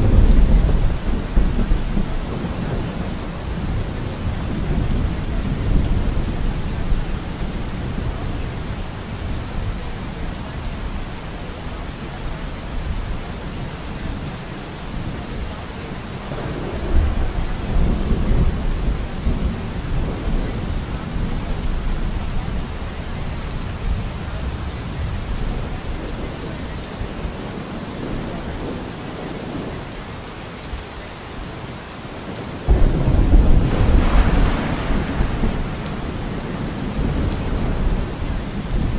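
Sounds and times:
loud thunderclap: 0.0s - 7.0s, 32.7s - 38.9s
rolling thunder: 0.0s - 11.1s, 15.0s - 22.8s, 32.3s - 38.9s
heavy rain: 0.0s - 38.9s.

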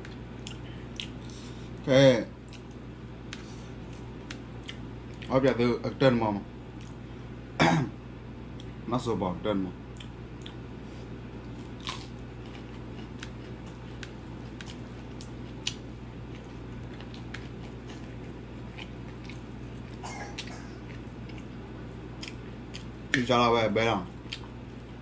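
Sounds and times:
person chewing food: 0.0s - 1.8s, 2.4s - 5.3s, 6.8s - 7.0s, 9.9s - 10.7s, 11.4s - 23.2s, 24.2s - 25.0s
steady low hum: 0.0s - 25.0s.

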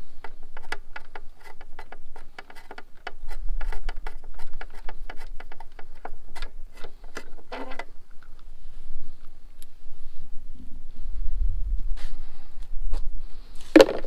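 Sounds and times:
wind rumble on microphone: 8.3s - 13.6s.

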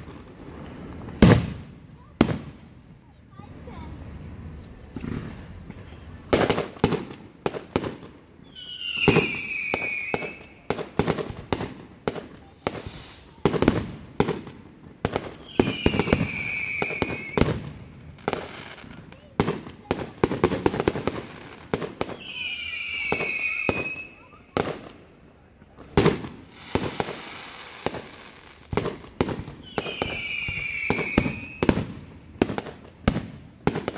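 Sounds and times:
firework bursts: 0.0s - 33.9s
falling firework whistle: 8.4s - 10.7s, 15.4s - 17.7s, 22.1s - 24.4s, 29.6s - 31.9s.

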